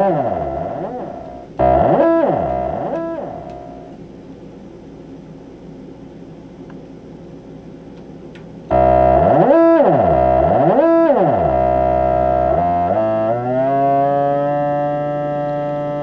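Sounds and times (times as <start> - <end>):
synthesizer held note: 0.0 - 4.0, 8.7 - 14.6.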